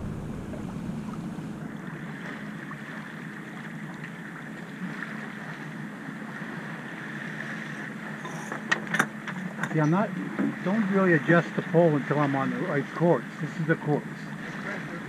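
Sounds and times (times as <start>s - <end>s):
wind noise on microphone: 0.0s - 2.0s
wind and water rushing: 0.0s - 9.2s, 9.8s - 15.0s.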